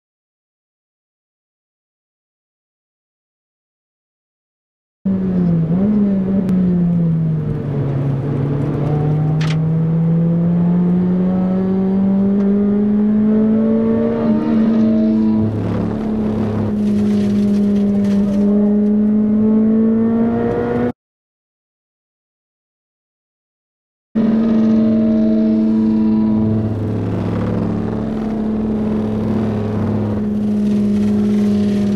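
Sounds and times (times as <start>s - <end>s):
car engine from inside cabin: 5.1s - 20.9s, 24.2s - 31.9s.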